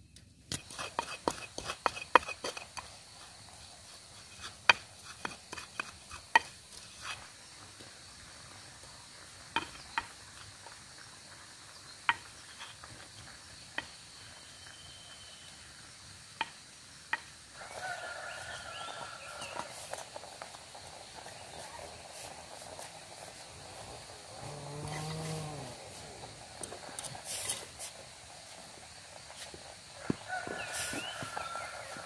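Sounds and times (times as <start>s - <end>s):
pestle grinding in mortar: 0.5s - 7.3s.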